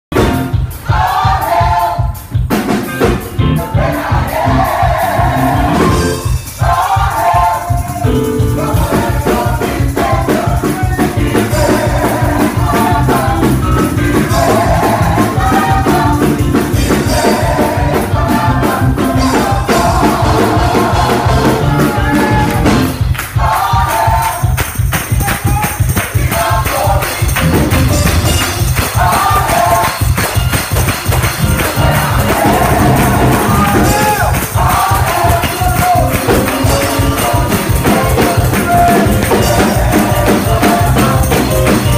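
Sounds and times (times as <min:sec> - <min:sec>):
steady bass: 0:00.1 - 0:41.9
gospel group singing with band: 0:00.2 - 0:41.9
tambourine shaking: 0:05.7 - 0:18.2, 0:22.9 - 0:41.9.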